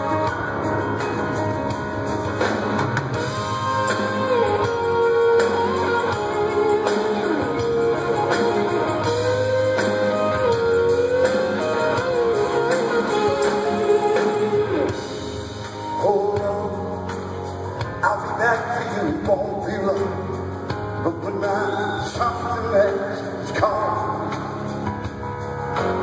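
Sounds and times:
bending guitar notes: 0.0s - 15.7s
live rock band playing: 0.0s - 26.0s.

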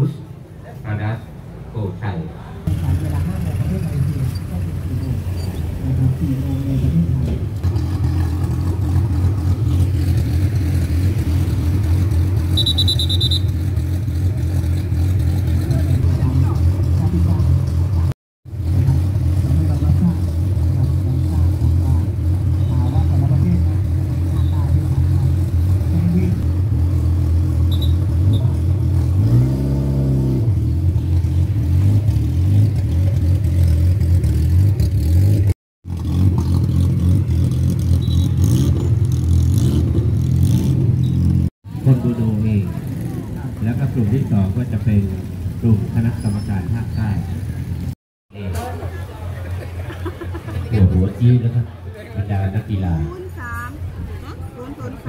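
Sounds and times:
engine rumbling: 0.0s - 55.0s
quick high-pitched beeps: 12.6s - 13.5s.

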